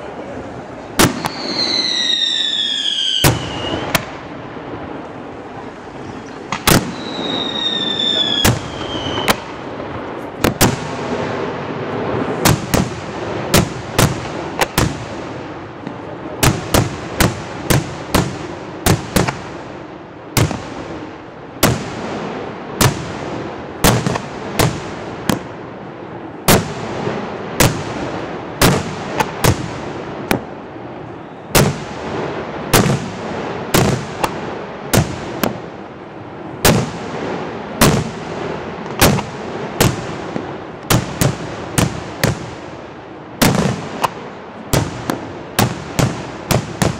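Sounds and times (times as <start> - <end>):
fireworks bangs: 0.0 - 46.9
high falling whistle: 1.2 - 4.0, 6.9 - 9.3.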